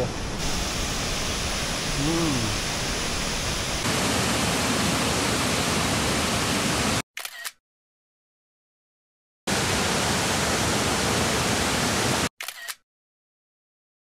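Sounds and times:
waterfall rushing: 0:00.0 - 0:07.0, 0:09.5 - 0:12.3.

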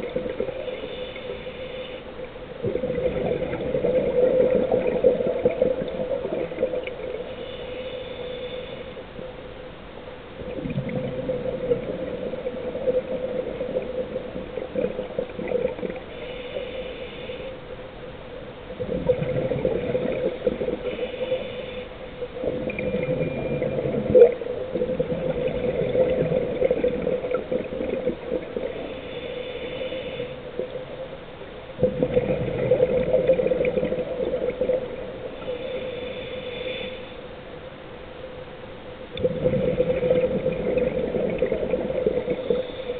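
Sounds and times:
exhaled air bubbling: 0:00.0 - 0:09.4, 0:10.3 - 0:37.4, 0:39.0 - 0:42.9
steady hum: 0:00.0 - 0:42.9
regulator inhale hiss: 0:00.5 - 0:02.3, 0:07.1 - 0:09.1, 0:16.0 - 0:17.7, 0:20.7 - 0:22.2, 0:28.7 - 0:30.6, 0:35.3 - 0:37.4, 0:42.2 - 0:42.9.

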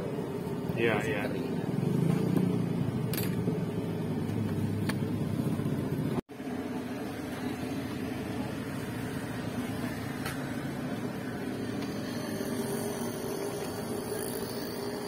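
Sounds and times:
gas burner rushing: 0:06.0 - 0:15.0.

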